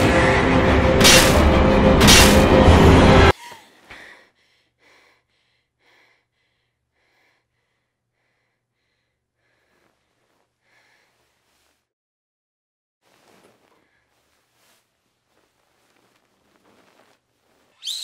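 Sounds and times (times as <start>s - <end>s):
woman panting: 3.3s - 11.5s.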